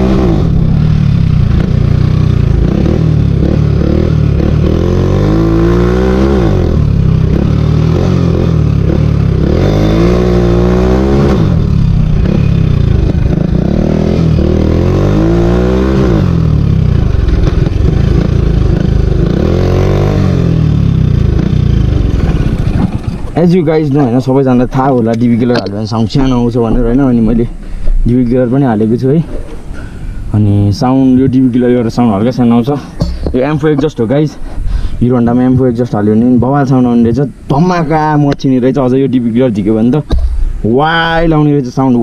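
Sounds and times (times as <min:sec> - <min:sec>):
motorcycle engine revving: 0:00.0 - 0:27.4.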